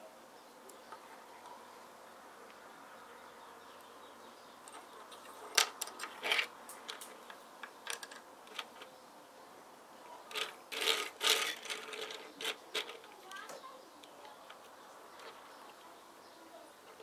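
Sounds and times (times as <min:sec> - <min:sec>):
plastic toy bricks clicking: 0:05.5 - 0:08.9, 0:10.3 - 0:13.2.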